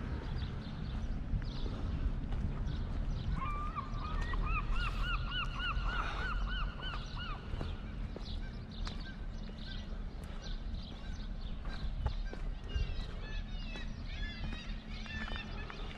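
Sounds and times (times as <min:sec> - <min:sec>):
low rumble: 0:00.0 - 0:15.9
gull calling: 0:03.3 - 0:09.2, 0:10.9 - 0:15.9.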